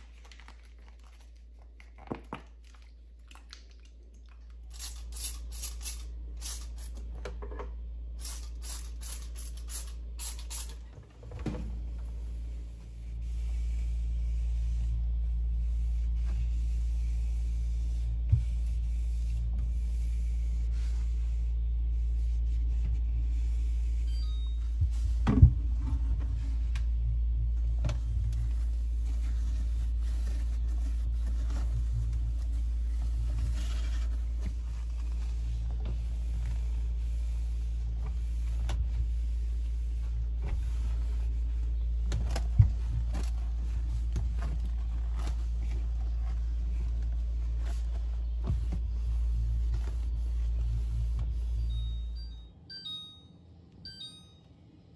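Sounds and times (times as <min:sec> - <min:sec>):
steady low hum: 0:00.0 - 0:54.9
cloth wiping plastic: 0:12.2 - 0:24.1, 0:27.7 - 0:52.2.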